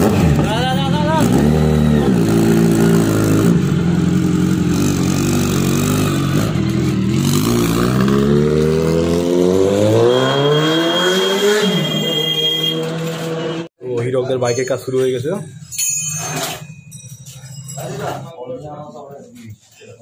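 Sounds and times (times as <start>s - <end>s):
motorcycle engine accelerating: 0.0s - 11.9s.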